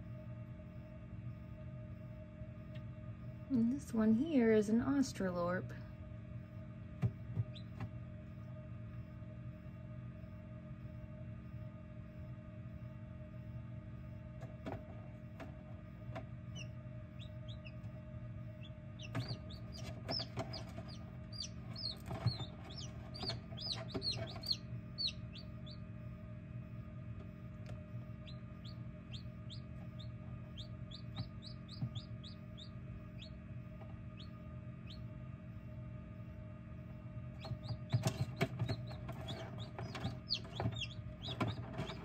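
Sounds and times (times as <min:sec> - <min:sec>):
steady low hum: 0:00.0 - 0:42.0
chicks peeping: 0:07.4 - 0:07.8, 0:16.5 - 0:25.9, 0:27.6 - 0:35.1, 0:37.4 - 0:42.0.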